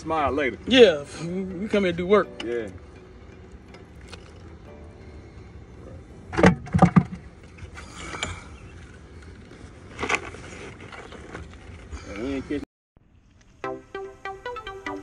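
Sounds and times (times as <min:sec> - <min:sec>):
knocks and thumps on a boat: 0:06.3 - 0:07.3.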